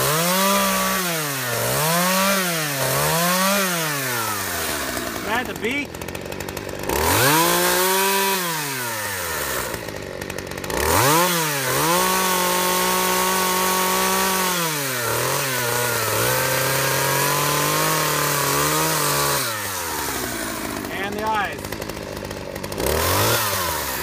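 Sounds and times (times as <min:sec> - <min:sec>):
electric chainsaw cutting log: 0:00.0 - 0:24.0.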